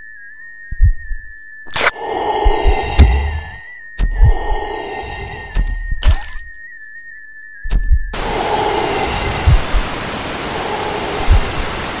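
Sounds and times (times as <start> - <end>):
short low thuds: 2.4 - 6.4, 7.7 - 8.2, 9.3 - 9.9, 11.3 - 11.7
television static hiss: 8.2 - 12.0.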